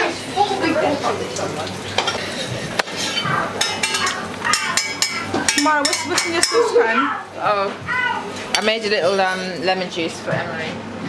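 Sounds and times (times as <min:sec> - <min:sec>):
pots and dishes clinking: 0:01.3 - 0:07.0.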